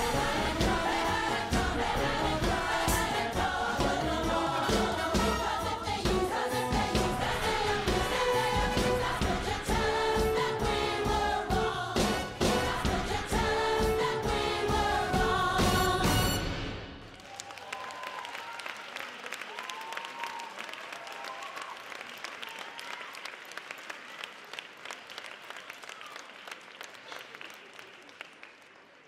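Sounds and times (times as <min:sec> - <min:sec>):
audience applauding: 0:17.0 - 0:29.0.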